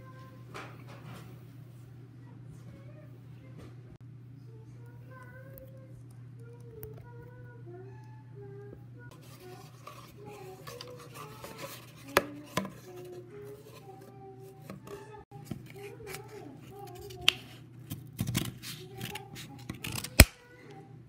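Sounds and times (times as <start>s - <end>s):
scissors snipping cardboard: 17.2s - 20.4s.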